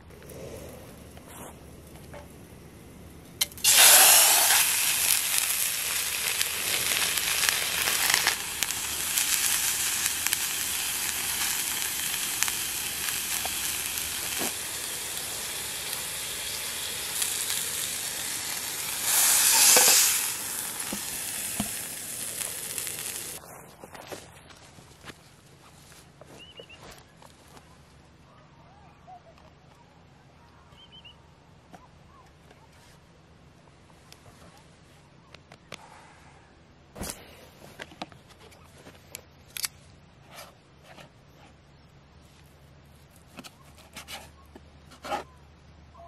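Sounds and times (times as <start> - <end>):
steak sizzling in frying pan: 3.5 - 23.4.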